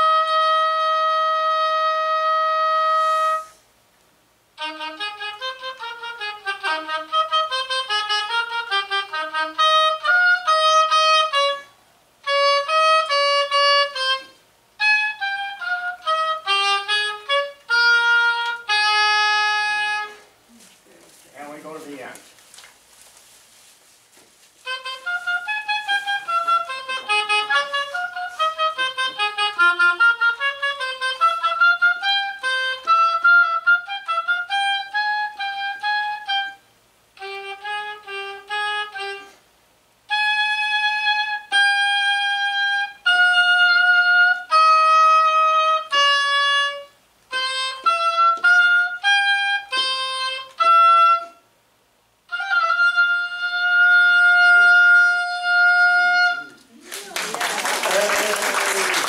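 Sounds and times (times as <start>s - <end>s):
solo oboe playing: 0.0s - 3.7s, 4.5s - 20.7s, 24.6s - 56.8s.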